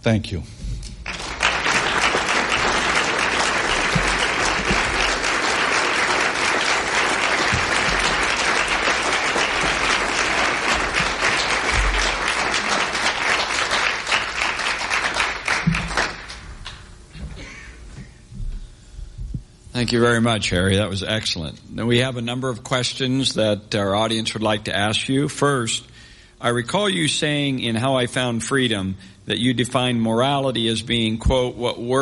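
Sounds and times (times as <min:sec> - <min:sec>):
audience applauding: 0:01.0 - 0:16.9.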